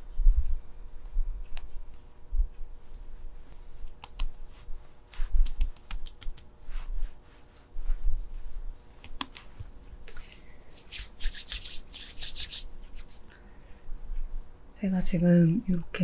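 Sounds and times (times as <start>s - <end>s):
fingertips patting skin: 3.8s - 4.5s, 5.2s - 6.6s, 9.0s - 9.8s, 10.8s - 13.3s.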